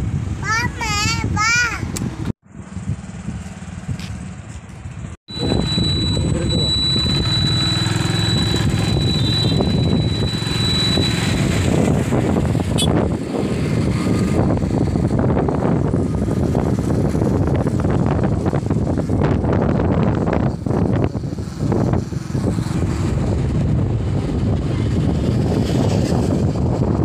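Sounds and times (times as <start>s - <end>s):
road noise: 0.0s - 27.0s
vehicle engine drone: 0.0s - 27.0s
wind buffeting microphone: 0.0s - 27.0s
faint high whistle: 5.3s - 11.3s.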